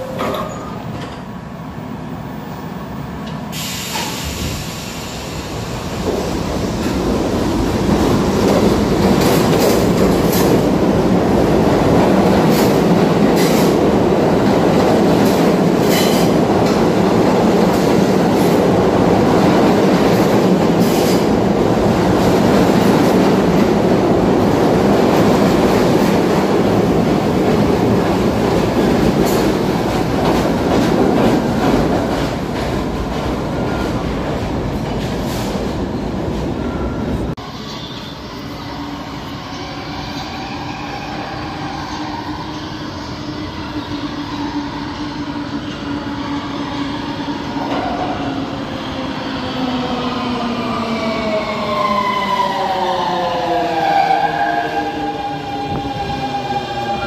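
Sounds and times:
subway train rumbling past: 0.0 - 57.0.

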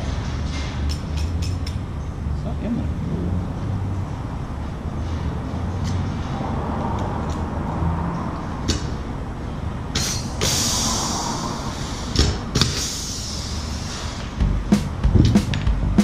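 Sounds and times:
steady low hum: 8.4 - 16.0
air exhaust hissing: 9.9 - 15.0
pneumatic rivet gun snapping: 10.0 - 10.8.

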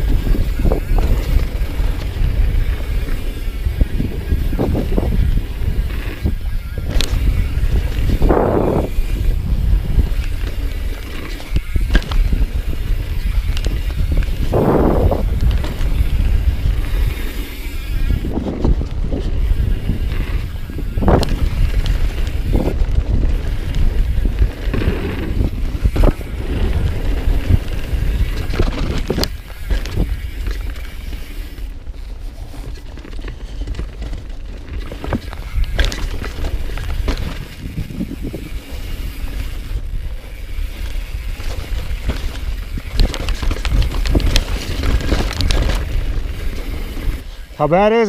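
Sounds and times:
wind on microphone: 0.0 - 47.8
tyres rolling on dirt: 0.0 - 48.0
bike clattering over rocks: 32.7 - 39.8, 40.5 - 47.2.

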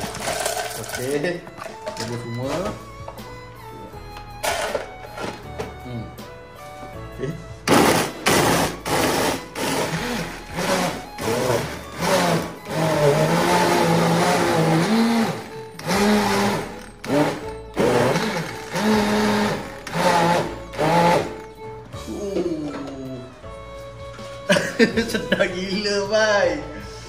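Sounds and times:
blender crushing ice: 0.0 - 1.2, 7.7 - 21.4.

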